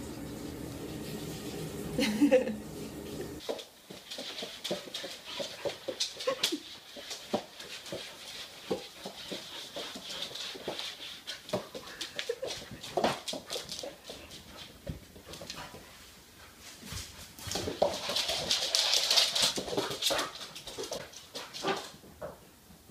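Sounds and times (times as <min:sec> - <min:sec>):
claws clicking on hardwood floor: 0:03.4 - 0:15.8, 0:17.5 - 0:22.4.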